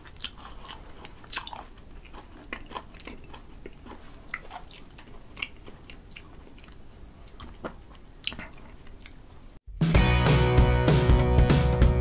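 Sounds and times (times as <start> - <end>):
person chewing: 0.0 - 9.6.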